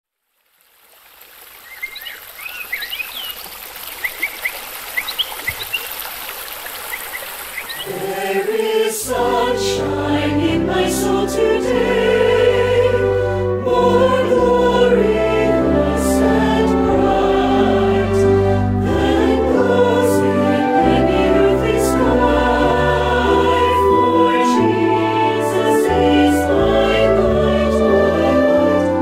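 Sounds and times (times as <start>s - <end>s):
stream trickling: 0.0s - 9.7s
birds chirping: 1.6s - 8.5s
orchestral music with choir: 7.7s - 29.0s.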